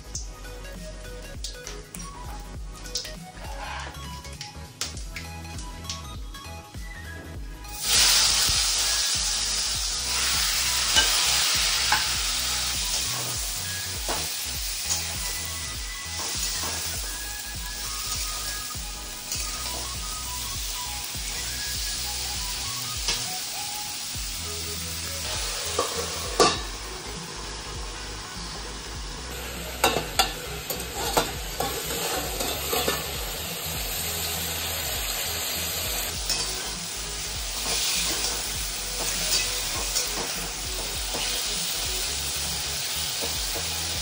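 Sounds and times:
vegetables sizzling in oil: 7.7s - 44.0s
metal spatula scraping pan: 29.8s - 33.1s.

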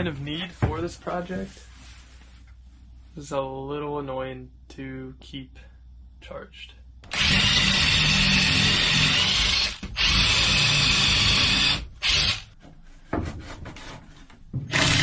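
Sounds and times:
cordless drill boring into wood: 7.1s - 12.5s, 14.7s - 15.0s.

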